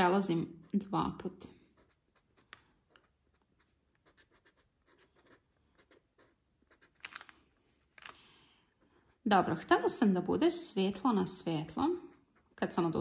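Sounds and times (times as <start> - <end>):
pen scratching on paper: 1.6 - 7.1, 11.7 - 13.0.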